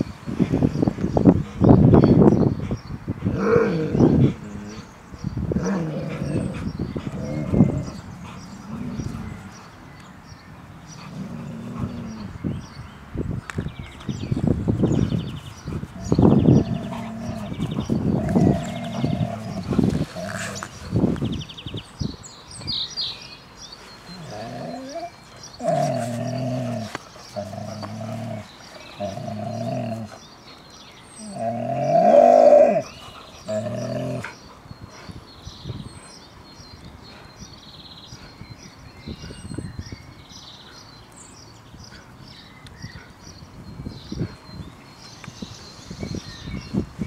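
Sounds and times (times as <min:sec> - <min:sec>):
dogs growling in play: 0:03.2 - 0:09.8, 0:10.8 - 0:12.7, 0:14.9 - 0:21.6, 0:24.0 - 0:34.8.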